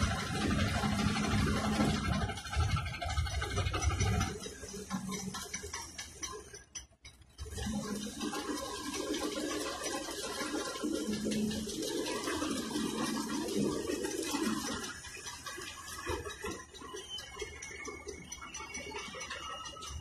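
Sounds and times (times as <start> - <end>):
water noise: 7.4 - 20.0.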